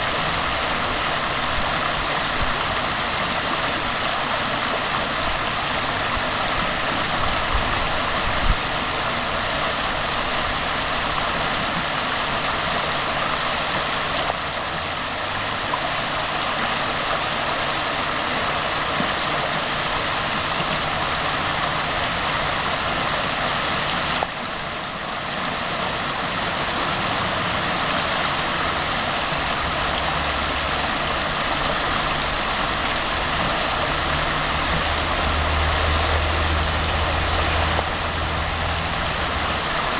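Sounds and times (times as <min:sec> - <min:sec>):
water rushing over rocks: 0:00.0 - 0:39.9.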